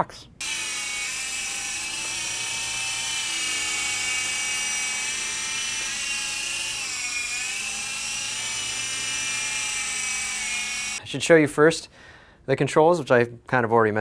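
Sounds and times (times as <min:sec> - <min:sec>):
toy helicopter motors whining: 0:00.4 - 0:11.0.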